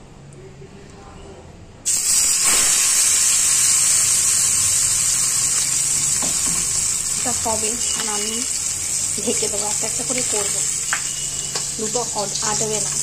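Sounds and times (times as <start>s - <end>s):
fish sizzling in hot oil: 1.9s - 13.0s.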